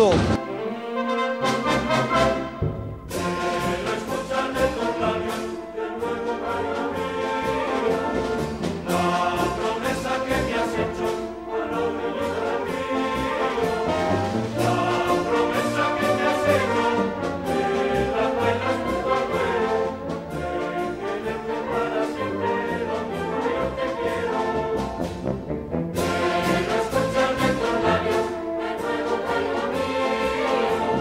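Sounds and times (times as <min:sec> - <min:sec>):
steady drum beat: 0:00.0 - 0:00.4
brass street band playing: 0:00.0 - 0:31.0.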